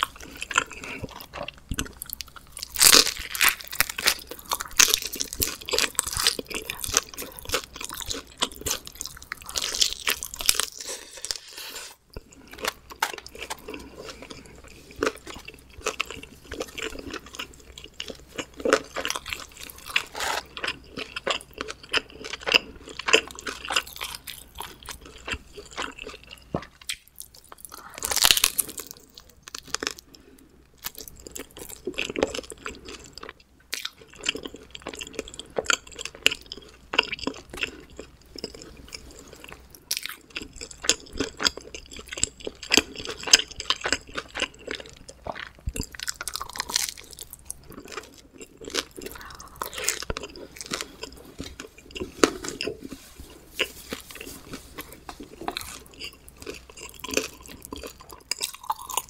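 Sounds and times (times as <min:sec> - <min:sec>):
chewing and crunching pizza: 0:00.0 - 0:59.0
wet mouth sounds: 0:48.4 - 0:59.0.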